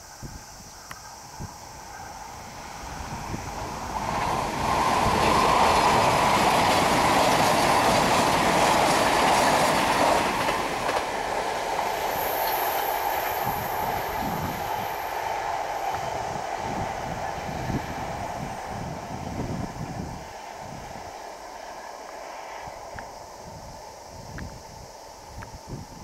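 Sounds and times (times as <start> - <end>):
train wheels clattering on rails: 2.9 - 19.7.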